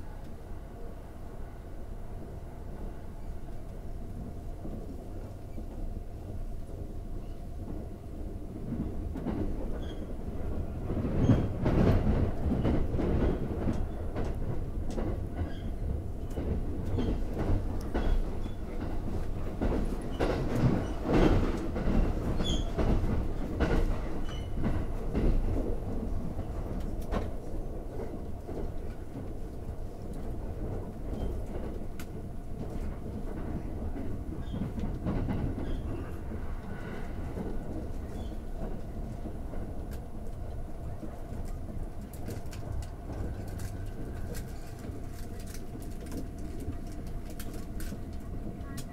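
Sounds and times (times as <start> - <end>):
train rumble: 0.0 - 48.9
wheels clacking over rail joints: 11.0 - 25.8.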